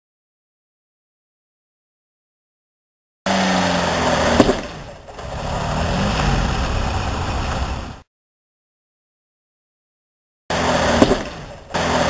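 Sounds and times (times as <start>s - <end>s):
car engine running: 4.1s - 8.0s.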